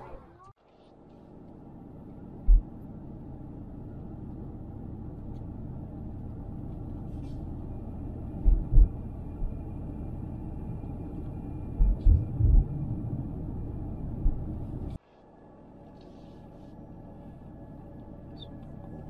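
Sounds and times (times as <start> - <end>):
car interior rumble: 2.0 - 15.0
short low thumps: 2.5 - 2.7, 8.4 - 9.5, 11.7 - 12.9.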